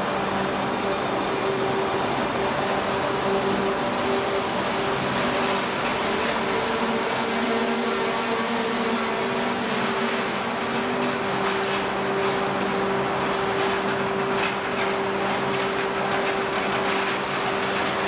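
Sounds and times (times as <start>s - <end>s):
train machinery humming: 0.0s - 18.0s.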